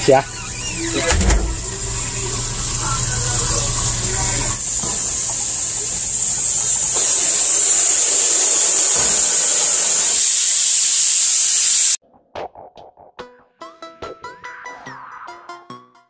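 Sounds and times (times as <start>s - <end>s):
water spraying from hose: 0.0s - 12.0s.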